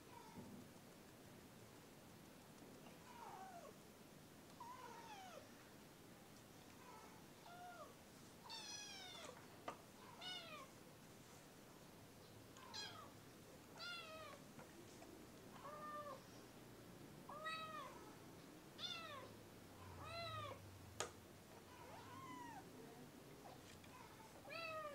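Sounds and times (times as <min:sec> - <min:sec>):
kitten meowing: 0:17.3 - 0:18.0.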